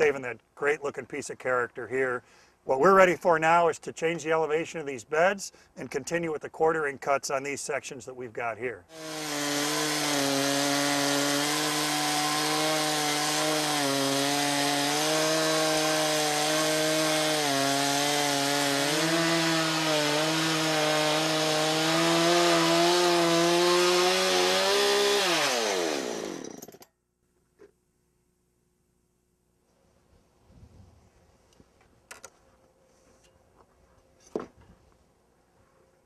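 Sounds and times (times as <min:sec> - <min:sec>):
chainsaw ripping through log: 0:08.9 - 0:26.9.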